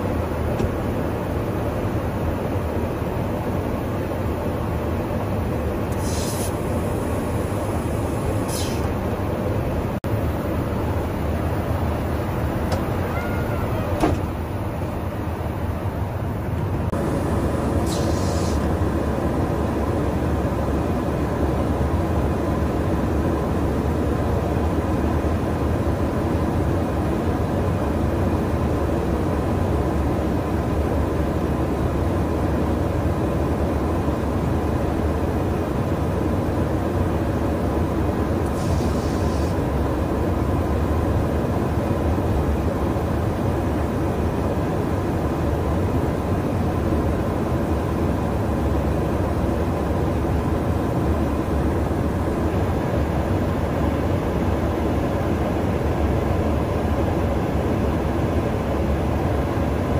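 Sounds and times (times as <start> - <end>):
aircraft engine and airflow drone: 0.0 - 59.9
high hiss: 5.9 - 8.9, 17.7 - 18.7.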